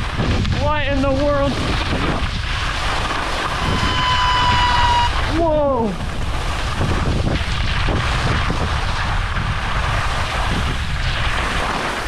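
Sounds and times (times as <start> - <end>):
skis sliding on snow: 0.0 - 12.0
wind buffeting microphone: 0.0 - 12.0.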